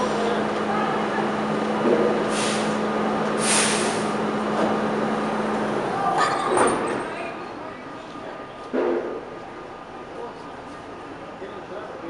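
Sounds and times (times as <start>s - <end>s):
subway train humming: 0.0s - 12.0s
hisses of air: 2.3s - 2.8s, 3.4s - 4.2s.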